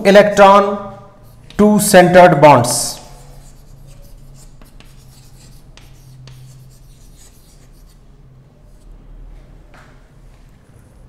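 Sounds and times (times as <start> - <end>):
chalk tapping and scratching: 0.6 - 2.0, 2.8 - 8.0.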